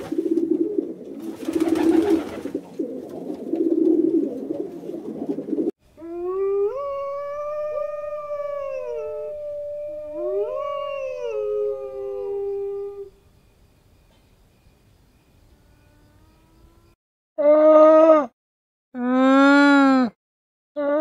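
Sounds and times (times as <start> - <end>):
pigeons cooing: 0.0 - 5.7
wolves howling: 6.0 - 13.2.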